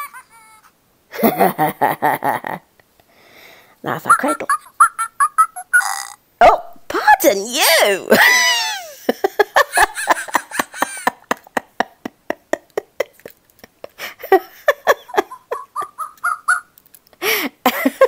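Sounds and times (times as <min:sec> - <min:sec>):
toy electronic voice squealing and giggling: 0:04.1 - 0:06.2, 0:15.3 - 0:16.7.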